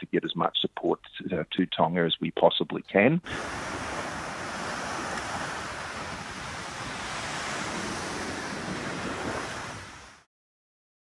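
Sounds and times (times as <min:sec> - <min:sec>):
floodwater rushing: 0:03.3 - 0:10.3
wind on microphone: 0:03.3 - 0:10.3.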